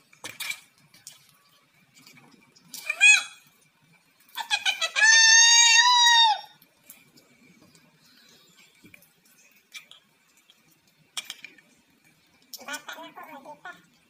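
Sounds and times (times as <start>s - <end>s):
shrill squeal of laughter: 4.4s - 6.5s.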